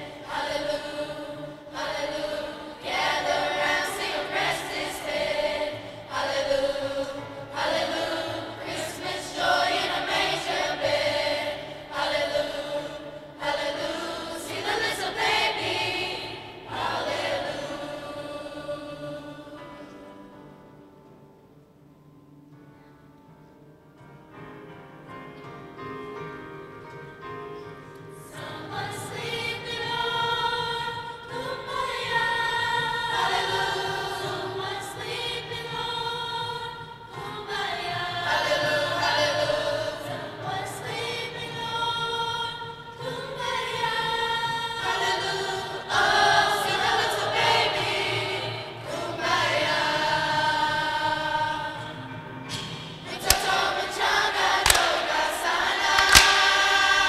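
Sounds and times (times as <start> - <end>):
choir singing: 0.0 - 20.4, 28.2 - 57.0
sharp knocks: 53.2 - 53.7, 54.6 - 55.1.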